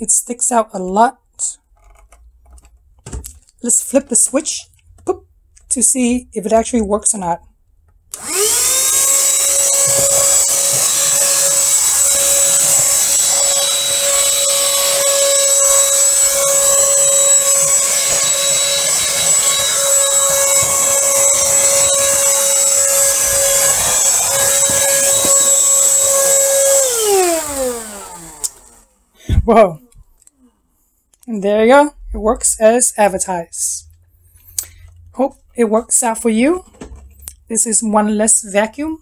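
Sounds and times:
vacuum motor winding down: 0:08.1 - 0:29.4
handheld vacuum whining: 0:08.1 - 0:30.4.

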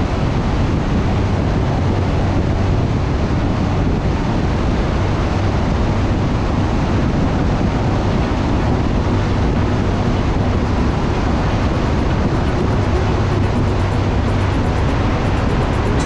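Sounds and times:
low engine hum: 0:00.0 - 0:16.0
wind and road noise: 0:00.0 - 0:16.0.

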